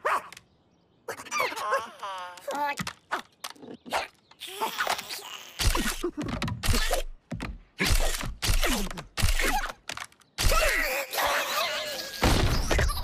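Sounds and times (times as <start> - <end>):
cartoon raccoons squealing: 1.1 - 2.8, 10.4 - 13.0.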